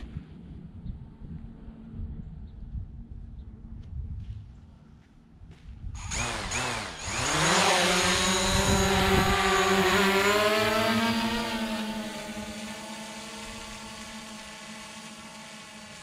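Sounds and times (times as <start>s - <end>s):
drone propeller motors whining: 5.9s - 16.0s.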